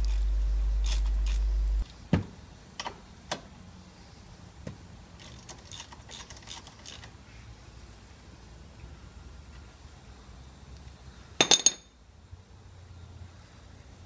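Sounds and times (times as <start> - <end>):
ratchet wrench clicking: 0.0 - 1.6, 5.2 - 7.1.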